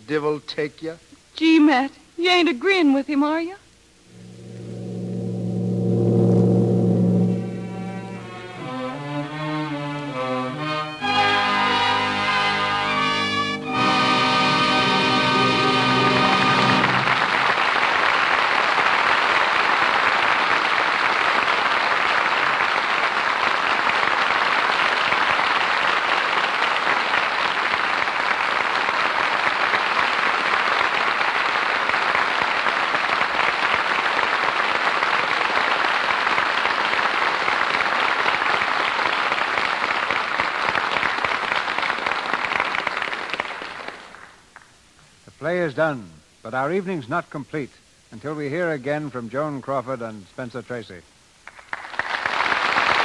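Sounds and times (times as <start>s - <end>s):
held music chord: 4.1s - 17.4s
audience applauding: 16.1s - 44.7s, 51.5s - 53.0s.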